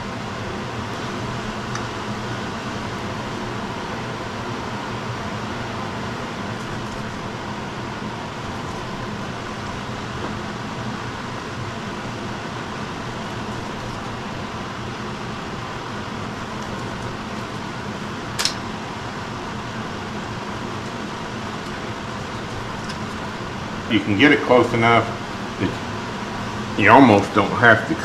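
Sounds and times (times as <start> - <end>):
fan-like machine hum: 0.0 - 28.0
sharp click: 18.4 - 18.6.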